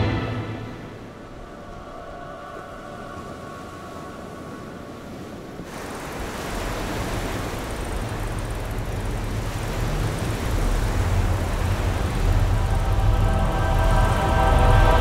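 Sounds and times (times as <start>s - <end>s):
rumbling whoosh: 0.0s - 1.6s
deep rumble: 0.0s - 1.8s, 8.0s - 15.0s.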